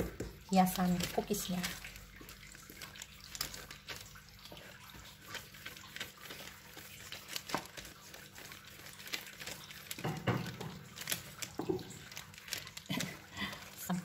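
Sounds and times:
plastic sheet crinkling: 0:00.0 - 0:14.0.

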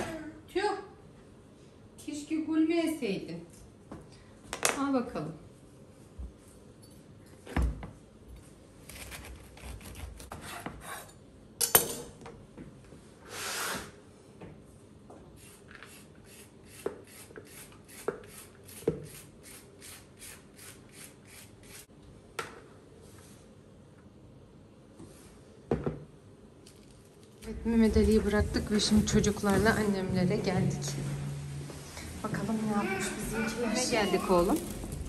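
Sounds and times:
peeler rasping cabbage: 0:08.9 - 0:11.0.

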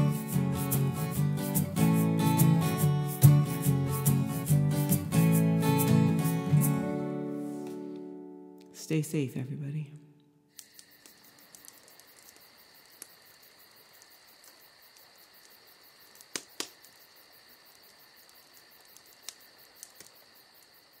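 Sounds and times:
wood fire crackling: 0:00.0 - 0:09.3, 0:10.5 - 0:21.0
crickets chirping: 0:00.0 - 0:21.0
sharp pops from fire: 0:10.5 - 0:20.9.

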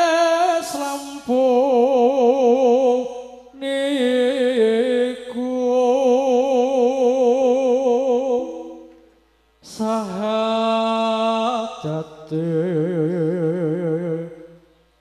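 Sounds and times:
man singing into a microphone: 0:00.0 - 0:08.9, 0:09.6 - 0:14.7.

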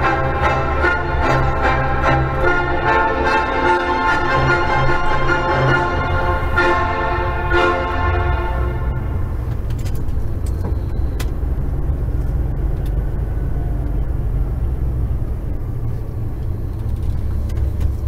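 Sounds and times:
truck engine and road rumble: 0:00.0 - 0:18.0.

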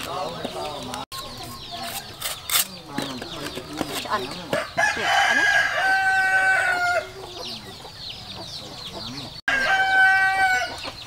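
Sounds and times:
rooster crowing: 0:04.6 - 0:07.2, 0:09.5 - 0:10.9.

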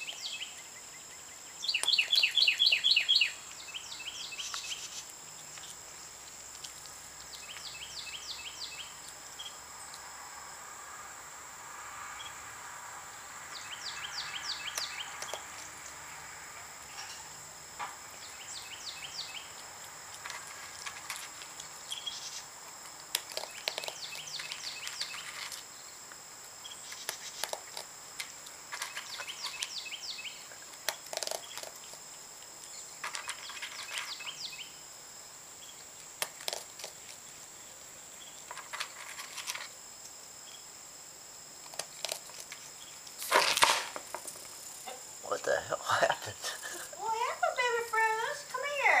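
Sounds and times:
high insect whine: 0:00.0 - 0:49.0
raccoon crunching kibble: 0:04.4 - 0:10.1, 0:14.4 - 0:16.6, 0:19.1 - 0:34.4, 0:35.7 - 0:37.5, 0:38.4 - 0:40.2, 0:41.5 - 0:44.8.

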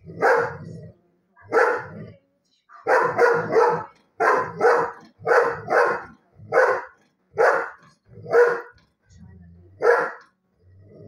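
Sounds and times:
dog barking: 0:00.1 - 0:00.7, 0:01.5 - 0:02.0, 0:02.8 - 0:08.8, 0:09.8 - 0:10.3.

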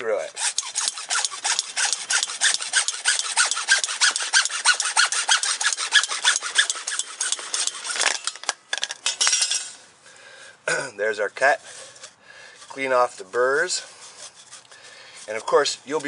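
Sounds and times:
hacksaw cutting plastic pipe: 0:00.2 - 0:08.6, 0:14.0 - 0:16.0.

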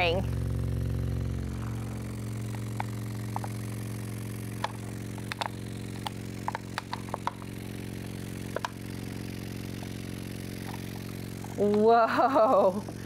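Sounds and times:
subwoofer low hum: 0:00.0 - 0:13.0
liquid clicks and splats: 0:04.6 - 0:07.5.

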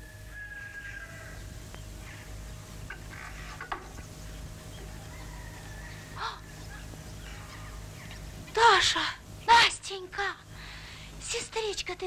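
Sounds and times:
farmyard fowl calling: 0:00.0 - 0:04.1, 0:04.8 - 0:08.3.

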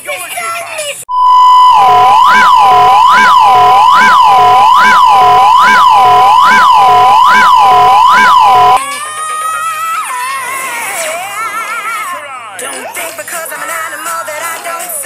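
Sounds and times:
electronic siren-like tone: 0:01.1 - 0:08.8.

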